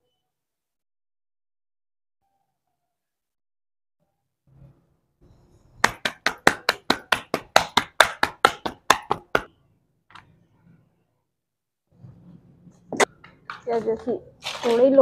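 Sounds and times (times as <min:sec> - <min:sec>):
hands slapping dough: 0:05.8 - 0:09.5.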